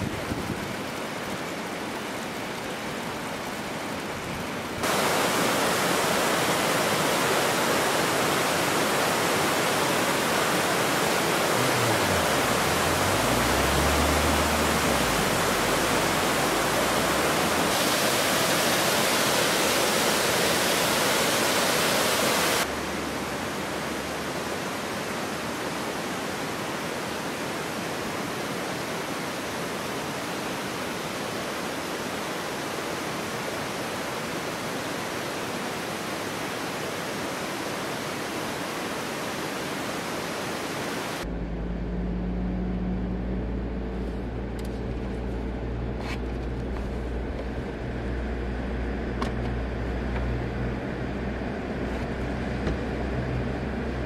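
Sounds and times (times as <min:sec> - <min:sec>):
stream rushing over rocks: 0:00.0 - 0:41.3.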